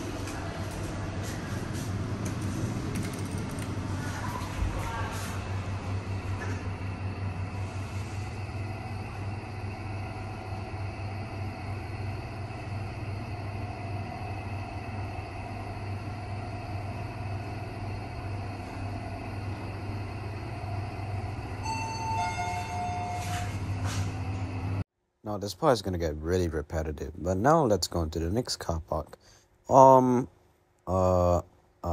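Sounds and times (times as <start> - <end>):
lift running with low hum: 0.0 - 24.8
two-note descending chime: 21.6 - 23.5.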